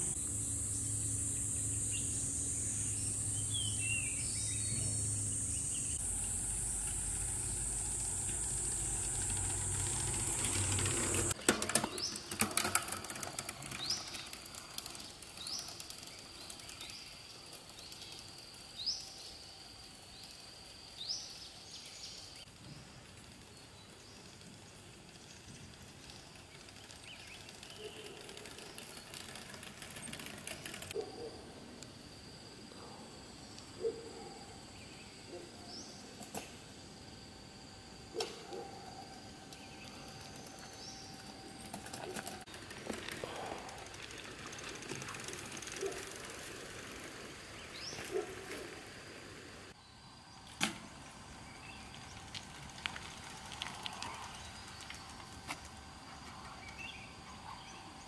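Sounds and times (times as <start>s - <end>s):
low hum: 0.0s - 11.4s
bird rising chirp: 0.0s - 12.2s
insect drone: 0.0s - 58.0s.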